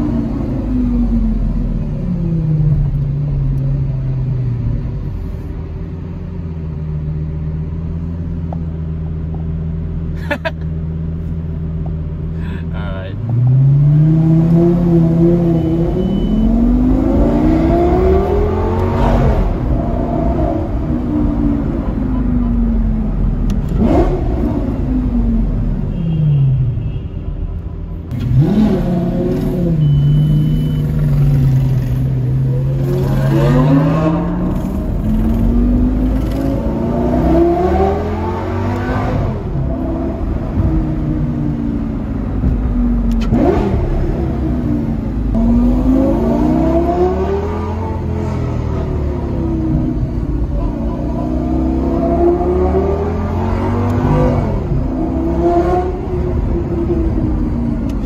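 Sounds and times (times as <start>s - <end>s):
sports car engine revving: 13.2s - 25.7s, 28.1s - 58.0s.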